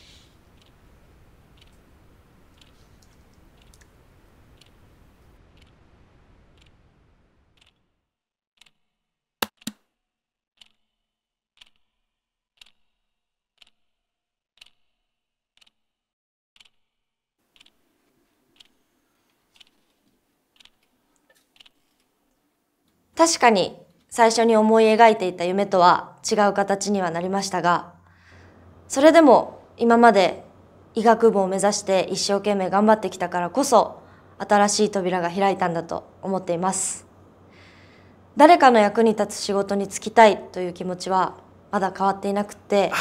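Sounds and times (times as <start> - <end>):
faint room noise: 0.0 - 7.6, 17.5 - 43.0
clock ticking: 0.4 - 1.9, 2.5 - 3.9, 5.5 - 5.8, 17.5 - 17.8, 18.5 - 18.8.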